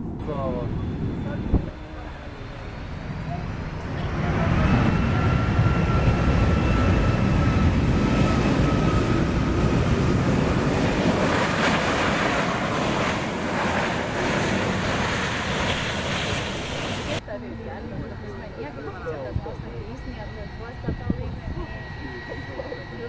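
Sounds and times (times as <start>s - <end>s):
high engine whine: 0.0s - 23.0s
jet engines roaring: 0.0s - 23.0s.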